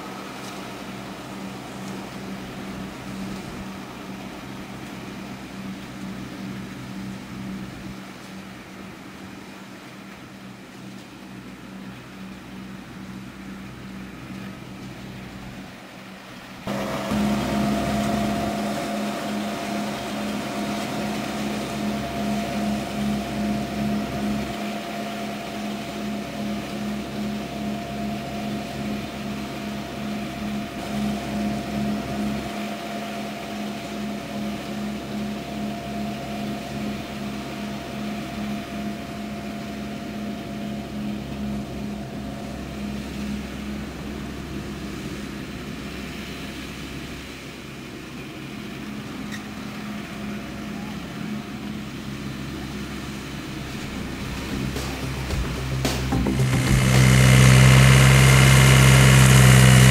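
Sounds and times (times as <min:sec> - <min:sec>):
tractor engine: 0:00.0 - 0:59.9
grass mower running: 0:16.6 - 0:59.9.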